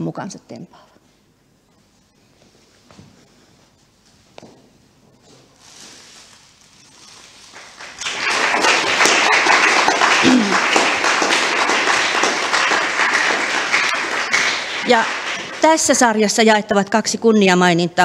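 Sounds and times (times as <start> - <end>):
audience applauding: 7.0 - 16.2.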